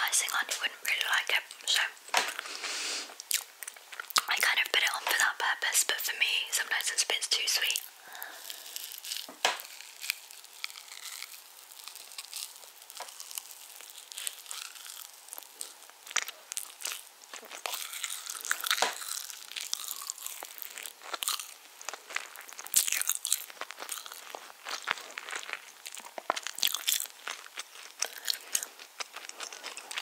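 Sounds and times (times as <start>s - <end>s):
close chewing of cake: 0.0s - 5.6s, 7.6s - 30.0s.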